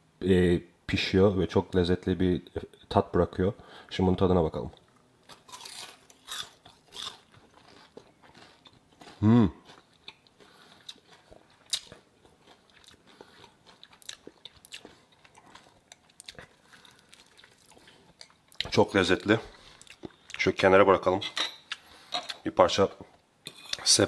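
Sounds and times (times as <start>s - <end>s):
crunching crisp fish skin: 5.3s - 14.9s
person humming: 9.2s - 9.6s.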